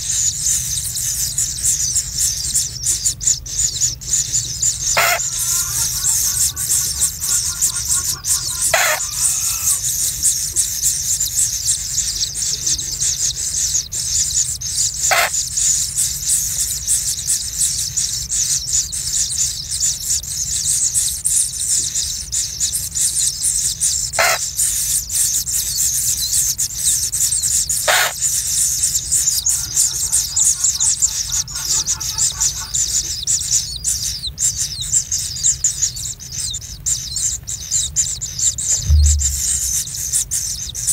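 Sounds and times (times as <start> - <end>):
nestlings begging chitter: 0.0 - 40.9
low thump: 38.7 - 39.8.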